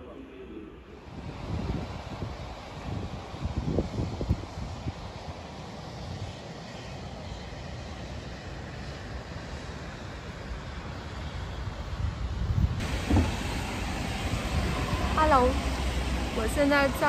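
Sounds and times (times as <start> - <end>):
distant city traffic rumble: 9.4 - 17.0
low thumps: 12.8 - 14.5
street traffic noise: 12.8 - 17.0.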